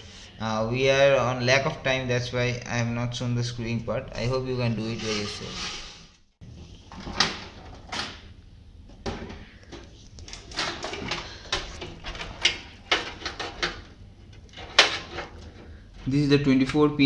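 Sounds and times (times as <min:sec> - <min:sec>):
cables rustling: 0:09.3 - 0:16.8.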